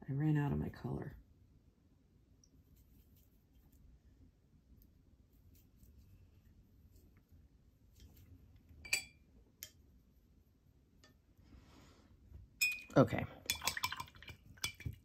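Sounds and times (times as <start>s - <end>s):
brush scrubbing: 4.8s - 8.6s.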